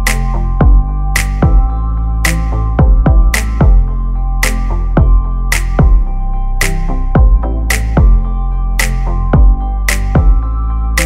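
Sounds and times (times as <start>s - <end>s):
electronic music with drum-machine beat: 0.0s - 11.0s
deep kick drums: 0.6s - 1.7s, 2.8s - 3.9s, 5.0s - 5.2s, 5.8s - 6.1s, 7.2s - 8.2s, 9.4s - 9.6s, 10.2s - 10.4s
snare-like hit: 5.5s - 6.0s.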